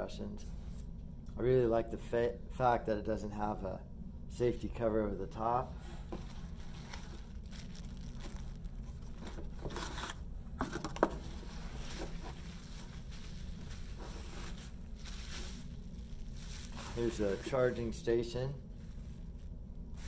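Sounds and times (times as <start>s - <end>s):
steady low hum: 0.0s - 20.0s
cardboard rustling: 6.0s - 17.9s
bubble wrap crinkling: 6.2s - 10.3s, 11.2s - 18.0s, 18.6s - 20.0s.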